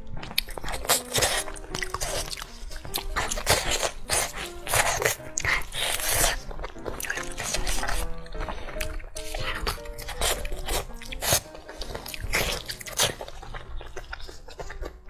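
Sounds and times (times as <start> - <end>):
background music with simple melody: 0.0 - 15.0
chewing sticky meat: 0.0 - 15.0.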